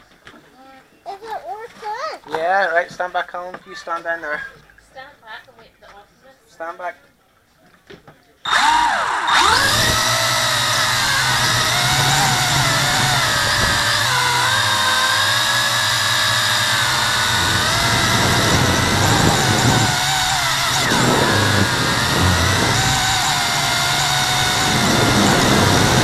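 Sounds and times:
quadcopter motors whining: 0:08.5 - 0:26.0.

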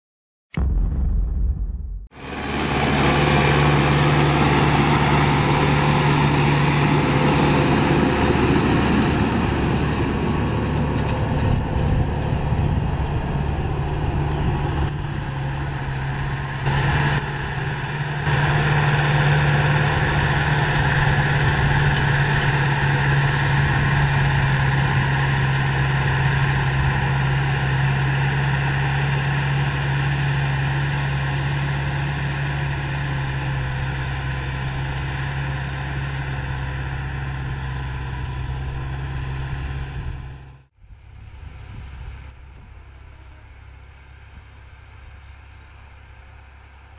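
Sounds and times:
tractor diesel engine under load: 0:02.2 - 0:46.9.

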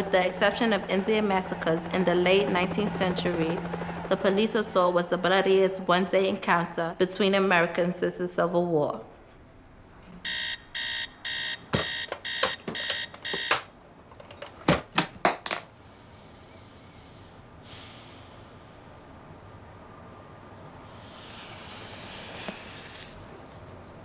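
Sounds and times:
alarm clock beeping: 0:10.2 - 0:13.7.

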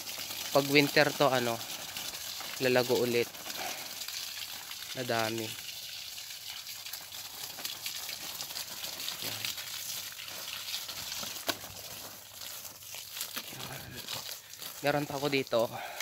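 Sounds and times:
garden hose spraying water: 0:00.0 - 0:16.0.

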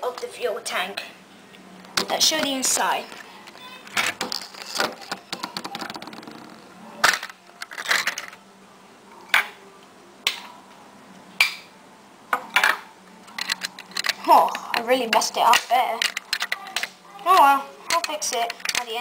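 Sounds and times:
plastic toy pieces clicking: 0:13.3 - 0:19.0.

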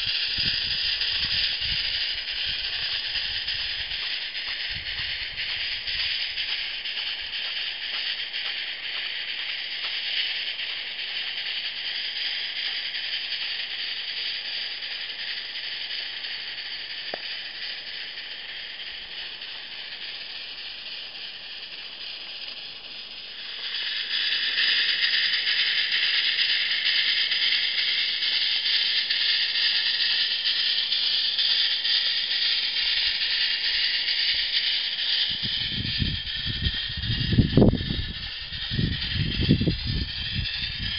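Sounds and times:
steam locomotive hissing: 0:00.0 - 0:40.9.

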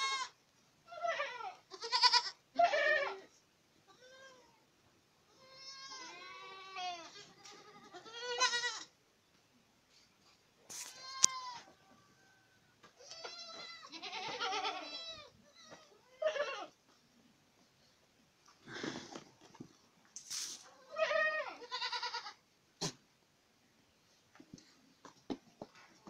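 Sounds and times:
goat kids bleating: 0:00.0 - 0:04.6, 0:05.2 - 0:09.0, 0:10.7 - 0:12.2, 0:12.8 - 0:17.0, 0:20.6 - 0:23.0.

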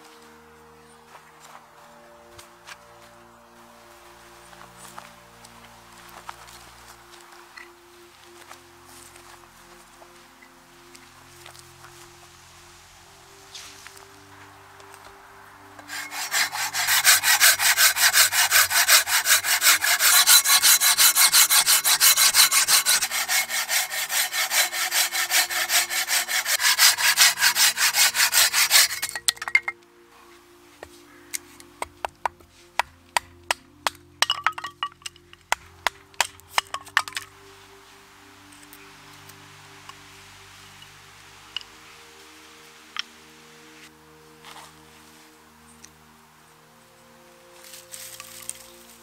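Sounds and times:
hand saw cutting wood: 0:15.8 - 0:29.7.

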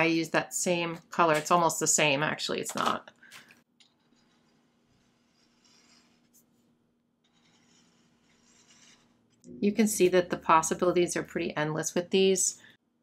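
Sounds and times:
marker scratching on paper: 0:03.9 - 0:06.6, 0:07.2 - 0:09.4.

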